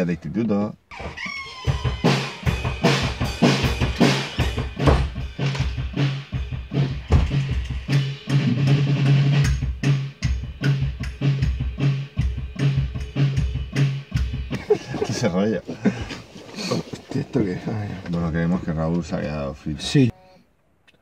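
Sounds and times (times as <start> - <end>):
drum kit steady beat: 1.7 - 16.1.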